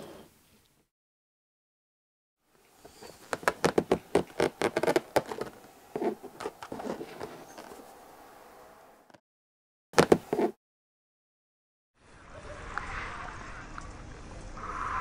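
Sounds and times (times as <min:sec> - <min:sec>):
balloon rubbing on fabric: 0:02.9 - 0:07.8, 0:10.0 - 0:10.6.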